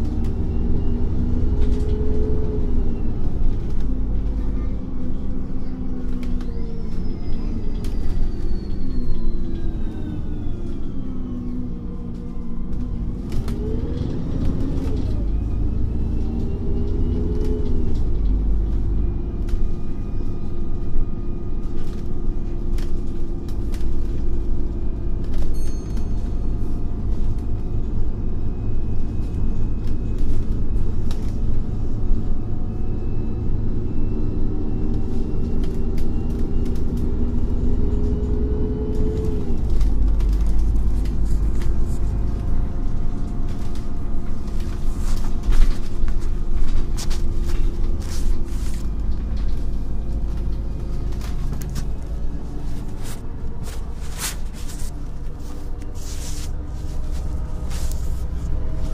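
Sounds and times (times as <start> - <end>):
bus engine rumbling: 0.0 - 58.9.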